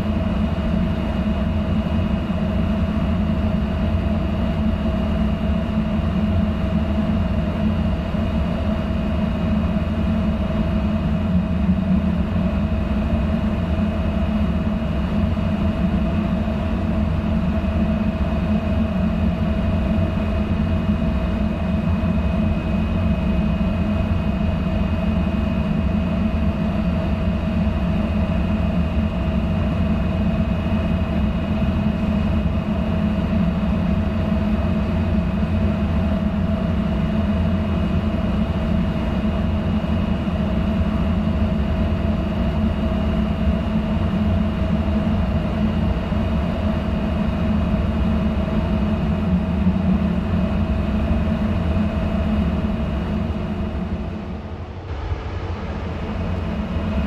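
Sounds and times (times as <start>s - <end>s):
faint high whine: 45.4s - 57.0s
diesel machinery droning: 48.6s - 57.0s.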